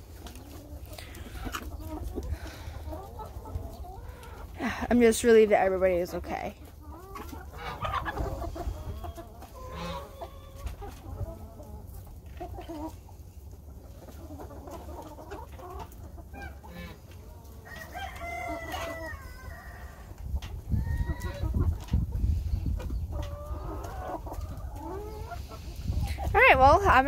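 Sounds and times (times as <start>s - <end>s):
chickens clucking: 0.0s - 27.0s
rooster crowing: 17.7s - 20.0s.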